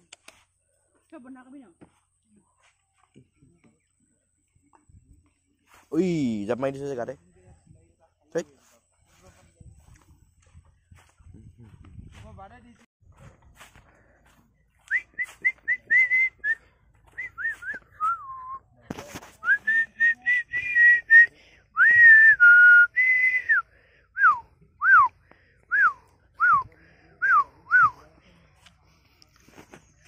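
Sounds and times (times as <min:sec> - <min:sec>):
person whistling: 0:14.9 - 0:18.6, 0:19.4 - 0:23.6, 0:24.2 - 0:25.1, 0:25.7 - 0:27.9.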